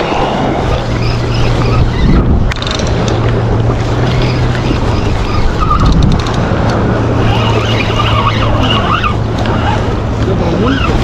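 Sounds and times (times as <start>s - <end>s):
wind on microphone: 0.0s - 11.0s
wavering high tones: 7.1s - 9.9s.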